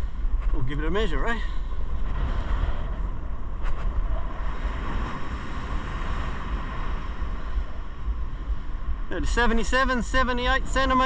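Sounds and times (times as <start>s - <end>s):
wind buffeting the microphone: 0.0s - 11.0s
ocean surf breaking: 0.2s - 11.0s.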